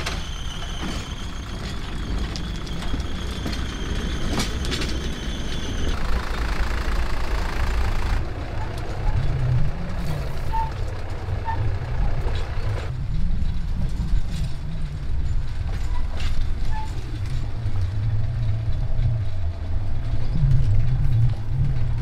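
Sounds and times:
engine low rumble: 0:00.0 - 0:22.0.

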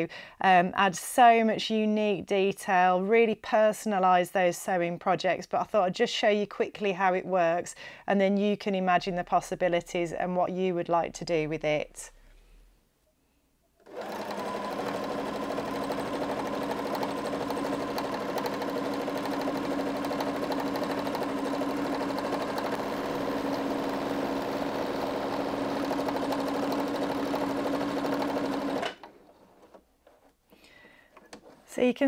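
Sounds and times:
sewing machine running: 0:13.8 - 0:29.8.

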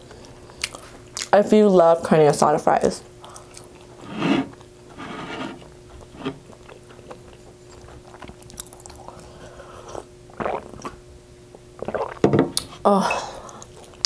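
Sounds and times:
person chewing food: 0:00.2 - 0:01.3, 0:03.2 - 0:12.8, 0:13.4 - 0:14.0
person sipping water: 0:03.2 - 0:14.0.

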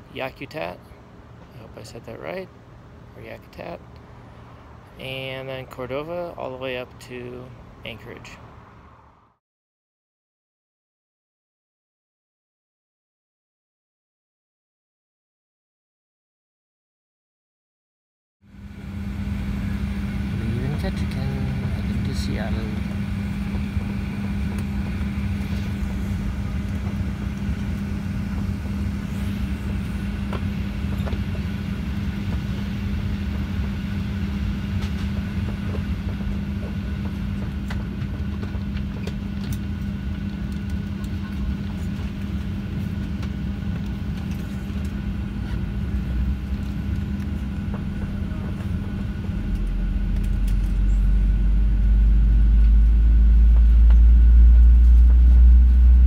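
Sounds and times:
aircraft cabin drone: 0:18.4 - 0:56.0
jet engine spooling up: 0:18.5 - 0:40.9.

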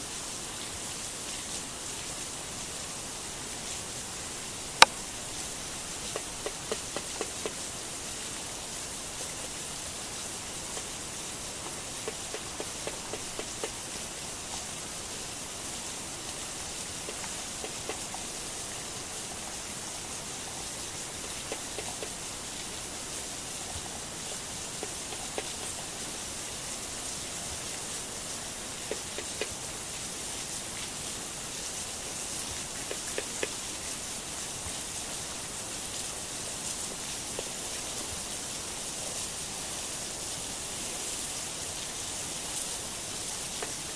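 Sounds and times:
steady hiss: 0:00.0 - 0:43.9
faint clicks and taps: 0:06.1 - 0:07.6, 0:11.6 - 0:13.8, 0:24.8 - 0:25.7, 0:28.9 - 0:29.6.

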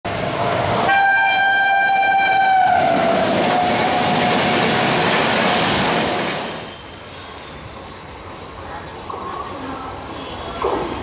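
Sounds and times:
train rushing past: 0:00.1 - 0:11.0
train horn blast: 0:00.8 - 0:04.0.

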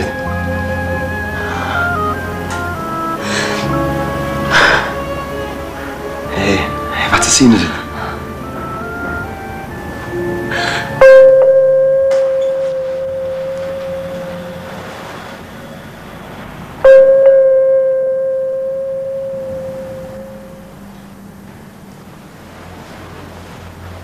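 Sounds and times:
bell-like chime ringing: 0:11.0 - 0:14.6, 0:16.8 - 0:20.8.

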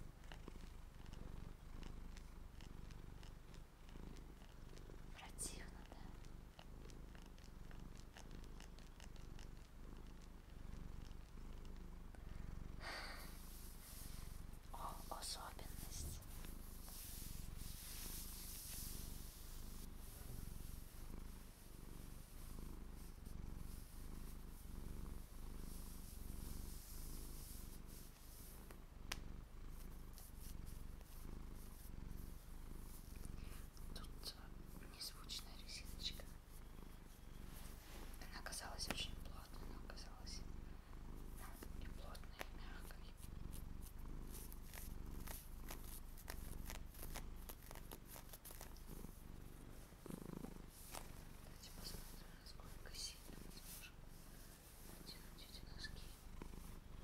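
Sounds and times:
fingernails scratching on socks: 0:43.8 - 0:48.8.

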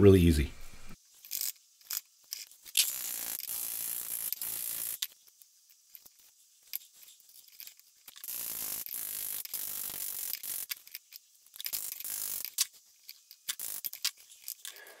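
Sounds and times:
vibrating tool buzzing on metal tube: 0:02.8 - 0:05.1, 0:08.2 - 0:10.7.

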